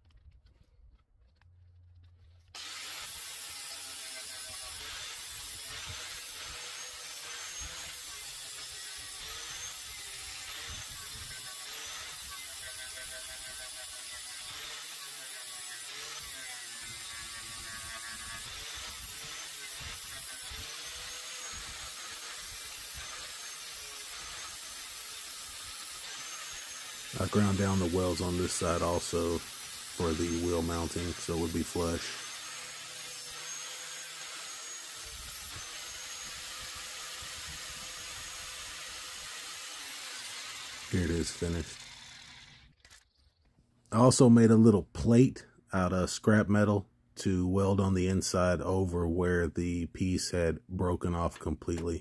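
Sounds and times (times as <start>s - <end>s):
angle grinder grinding steel: 2.6s - 43.4s.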